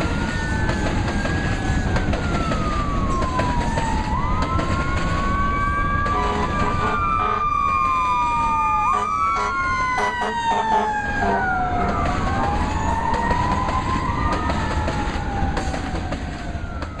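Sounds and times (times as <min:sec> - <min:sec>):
train clanks: 0:00.0 - 0:05.3, 0:11.8 - 0:17.0
freight train rumbling: 0:00.0 - 0:17.0.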